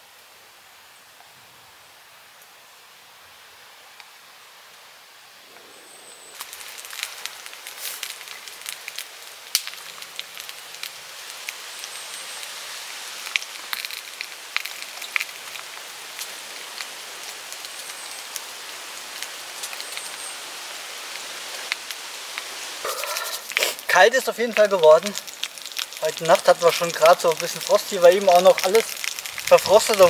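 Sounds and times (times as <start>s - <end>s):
fire crackling: 5.4s - 30.0s
sausages sizzling in a pan: 6.0s - 30.0s.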